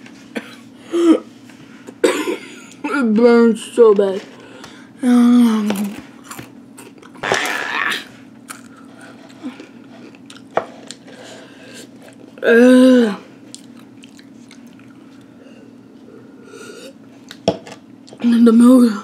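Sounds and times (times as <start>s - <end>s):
chips crunching: 6.2s - 11.1s
person groaning: 7.2s - 8.1s.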